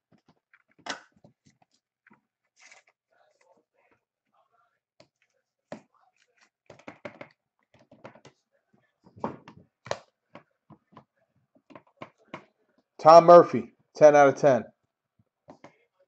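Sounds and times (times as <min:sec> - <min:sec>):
trading cards tapping and clicking: 0:06.7 - 0:08.4.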